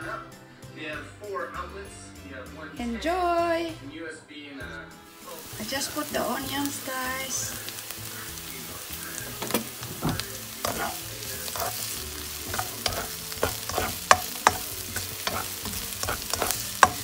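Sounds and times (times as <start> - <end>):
onions sizzling in hot oil: 5.1 - 17.0
spatula scraping and tapping pan: 8.6 - 17.0.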